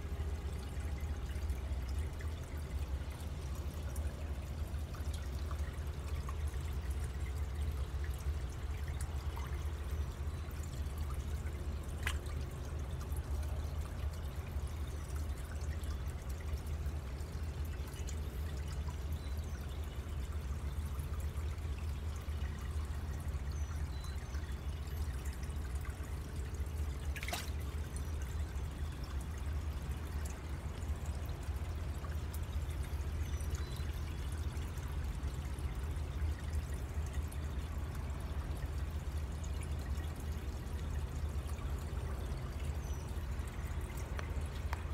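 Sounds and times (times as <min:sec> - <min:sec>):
water pouring into pond: 0:00.0 - 0:44.9.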